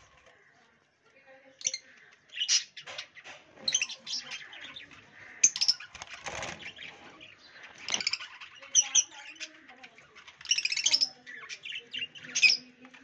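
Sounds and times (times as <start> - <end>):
budgerigars chirping: 1.7 - 12.8
wings flapping: 5.8 - 6.8.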